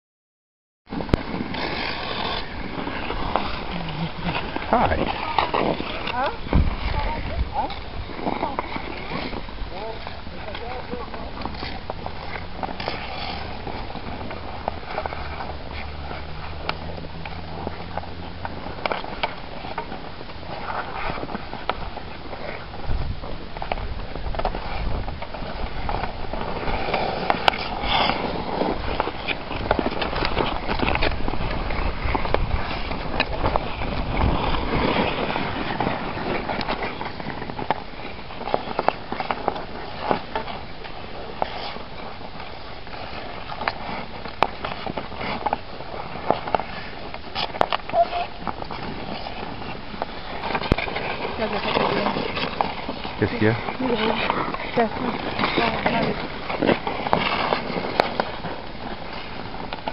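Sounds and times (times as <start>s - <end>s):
skate blades scraping ice: 0.9s - 59.9s
hockey sticks clacking on puck: 1.0s - 6.9s, 7.6s - 22.7s, 23.6s - 59.9s.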